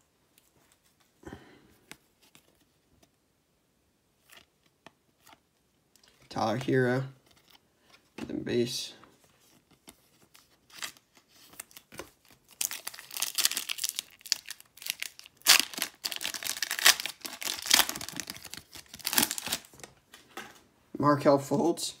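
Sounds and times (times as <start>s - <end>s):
wrapper tearing and crinkling: 10.6s - 19.8s.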